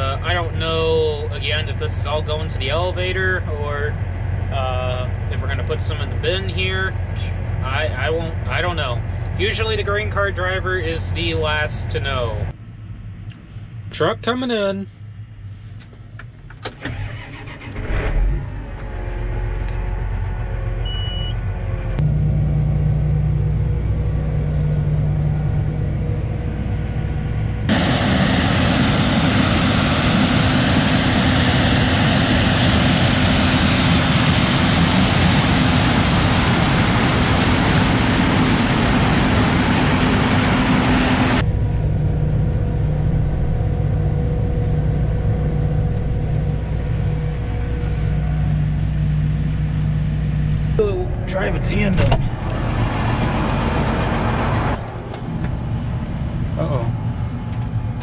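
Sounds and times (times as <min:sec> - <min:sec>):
tractor engine running: 0:00.0 - 0:13.5, 0:14.9 - 0:58.0
loud even rushing noise: 0:25.0 - 0:41.7.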